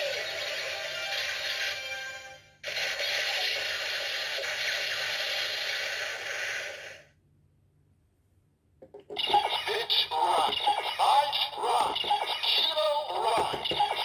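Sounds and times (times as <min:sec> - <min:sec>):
toy belt electronic voice: 0:09.2 - 0:14.0.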